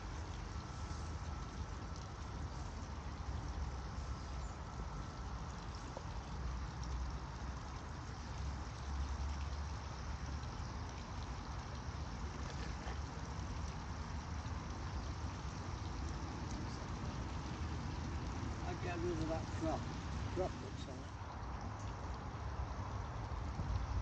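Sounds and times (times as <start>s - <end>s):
water noise: 0.0s - 24.0s
wind rumble on microphone: 21.3s - 24.0s.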